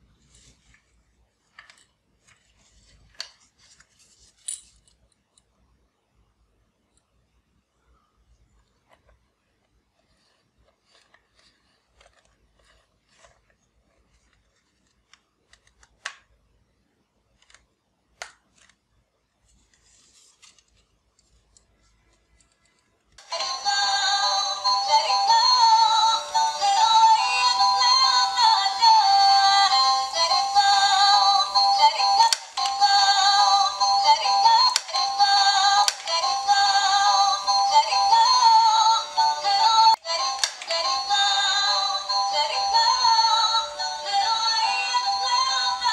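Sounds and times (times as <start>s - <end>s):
synthesized toy melody: 23.2s - 45.9s
plastic clicks: 35.7s - 36.3s, 40.2s - 40.8s.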